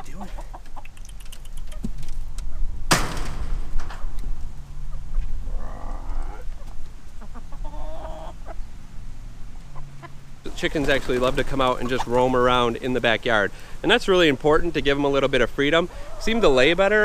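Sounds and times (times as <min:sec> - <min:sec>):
hens clucking: 0:00.0 - 0:02.7, 0:04.2 - 0:17.0
small ticks: 0:00.7 - 0:02.5
hen long drawn-out calls: 0:04.8 - 0:08.7, 0:15.9 - 0:16.6.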